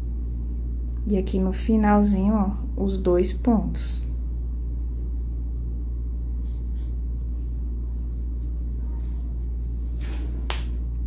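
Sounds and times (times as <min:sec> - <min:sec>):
steady low hum: 0:00.0 - 0:11.0
faint soft rustles: 0:04.0 - 0:05.5, 0:06.3 - 0:10.4.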